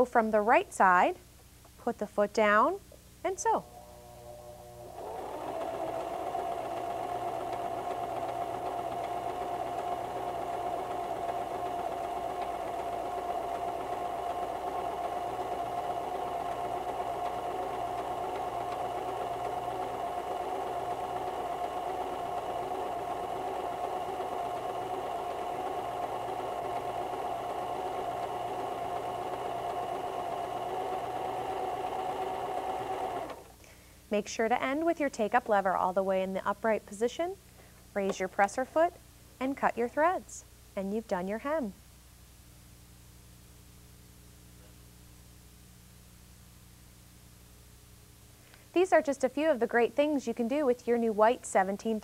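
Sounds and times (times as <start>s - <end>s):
sewing machine running: 4.8s - 33.5s.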